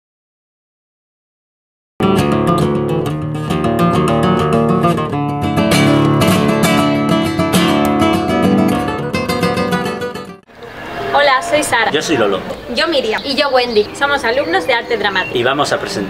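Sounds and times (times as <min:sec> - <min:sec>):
strummed acoustic guitar: 0:02.0 - 0:10.4.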